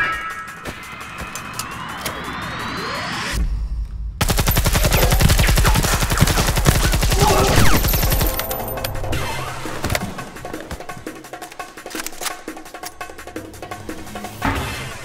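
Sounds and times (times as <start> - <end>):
submachine gun automatic fire: 4.2 - 8.6.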